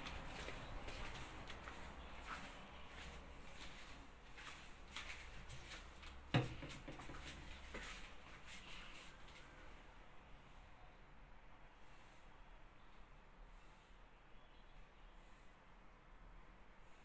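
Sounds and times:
faint footsteps: 0.0s - 9.9s.

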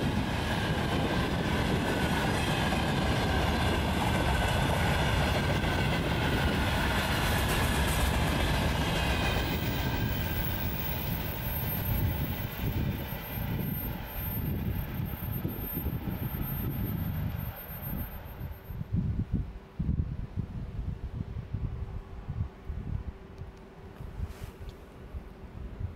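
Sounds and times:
train rumbling past on rails: 0.0s - 19.6s.

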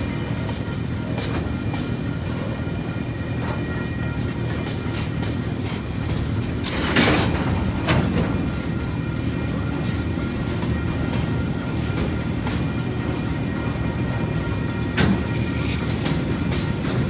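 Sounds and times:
train wheels rumbling on rail: 0.0s - 17.0s
wheel clunks over rail joints: 4.6s - 12.7s, 13.5s - 17.0s.

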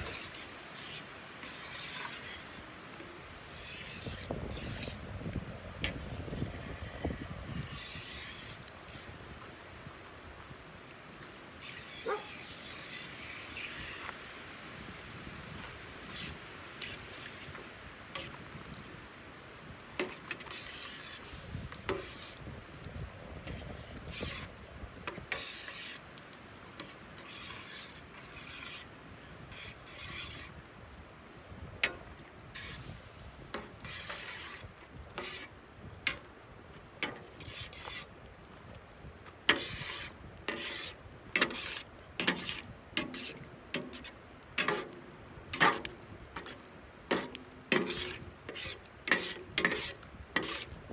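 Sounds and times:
metal spatula scraping pan: 0.0s - 5.0s, 5.8s - 9.1s, 11.6s - 14.2s, 16.1s - 18.4s, 20.0s - 22.4s, 23.4s - 24.5s, 25.1s - 26.0s, 26.8s - 28.9s, 29.5s - 30.5s, 31.8s - 34.6s, 35.2s - 35.5s, 37.0s - 38.1s, 39.5s - 50.7s.

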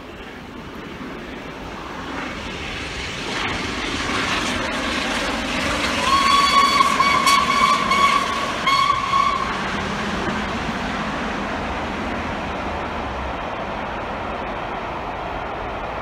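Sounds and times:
approaching train noise: 0.0s - 16.0s
steam whistle blasts: 6.0s - 9.6s.

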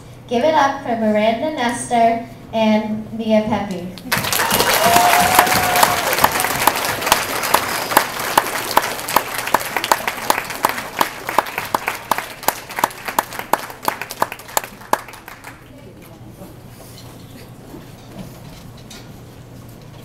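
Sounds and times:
steady nearby clapping: 4.0s - 15.7s
audience applauding: 4.1s - 15.7s.

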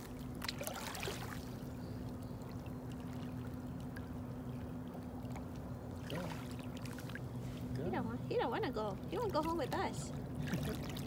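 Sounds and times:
water splashing: 0.0s - 1.7s, 2.4s - 7.8s, 8.5s - 11.0s
water trickling and dripping: 0.0s - 7.8s
low hum: 0.0s - 11.0s.

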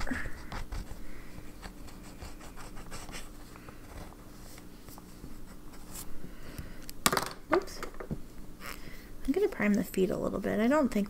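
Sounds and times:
pen nib scratching paper: 0.0s - 1.0s, 1.6s - 4.1s.

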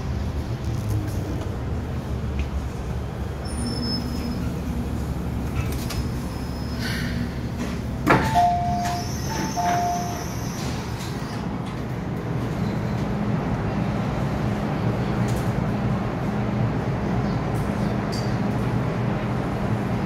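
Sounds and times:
train hum and rumble: 0.0s - 20.0s
door-closing chime beeps: 8.1s - 10.2s.

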